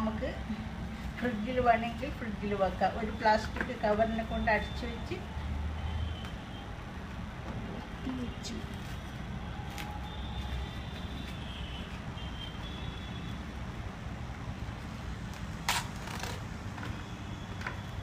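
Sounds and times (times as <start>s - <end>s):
sharp plastic crackles: 8.6s - 12.8s, 14.7s - 18.0s.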